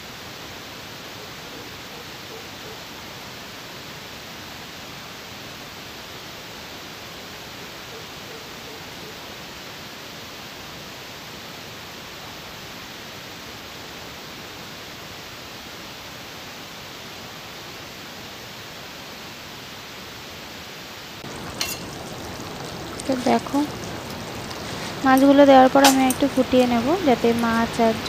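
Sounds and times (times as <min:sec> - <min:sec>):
steady hiss: 0:00.0 - 0:28.0.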